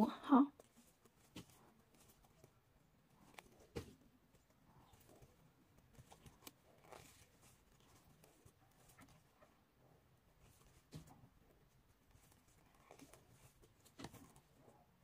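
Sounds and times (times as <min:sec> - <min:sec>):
yarn rustling: 0:00.6 - 0:09.6.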